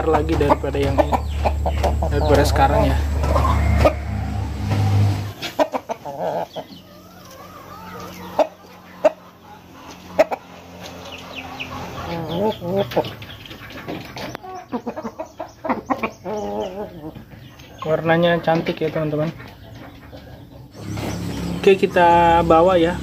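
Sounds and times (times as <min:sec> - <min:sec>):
low rumble: 0:00.0 - 0:05.4
chickens clucking: 0:00.0 - 0:23.0.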